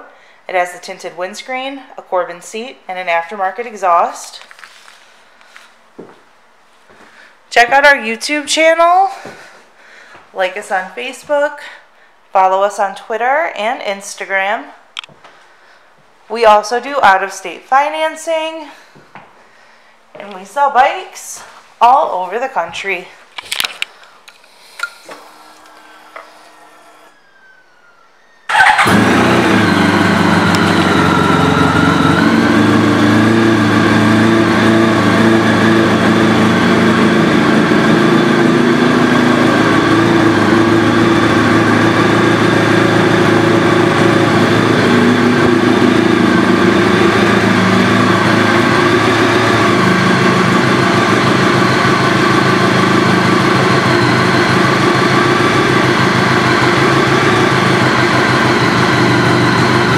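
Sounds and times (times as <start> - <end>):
motorcycle engine idling: 28.5 - 59.9.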